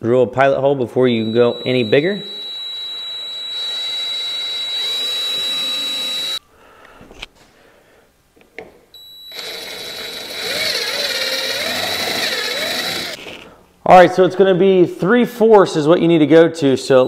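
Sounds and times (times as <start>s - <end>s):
cordless drill boring: 1.2s - 6.4s, 9.0s - 13.5s.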